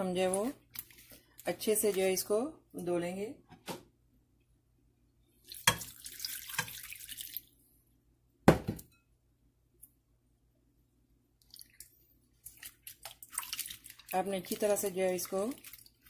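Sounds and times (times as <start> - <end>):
water pouring into bowl: 5.4 - 7.5, 11.4 - 16.0.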